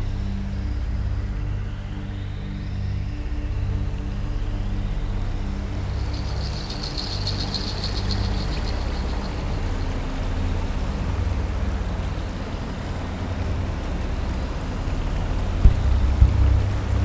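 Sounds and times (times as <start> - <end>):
fountain machinery rumble: 4.3 - 17.0.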